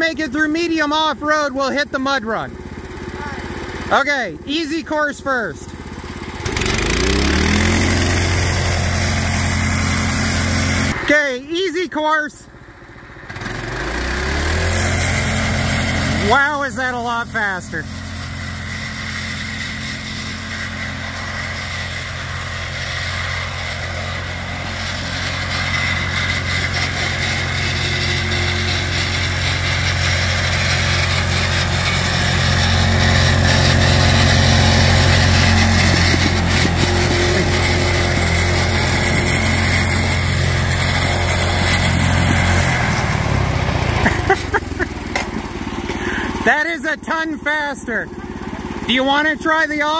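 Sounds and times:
go-kart engine running: 0.0 - 49.9.

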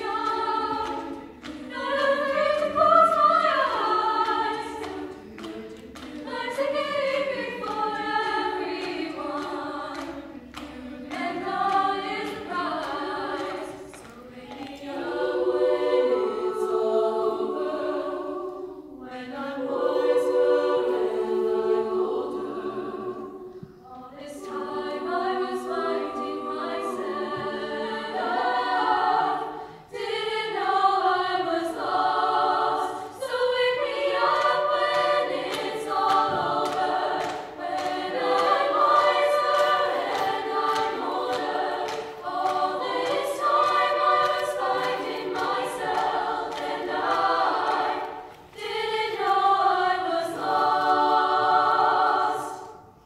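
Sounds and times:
women's choir singing in harmony: 0.0 - 53.0.

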